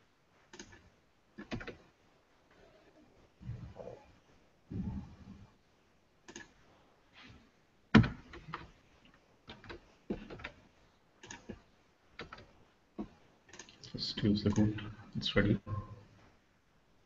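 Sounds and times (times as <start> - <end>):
keyboard keystrokes: 1.4 - 1.8, 11.2 - 11.6.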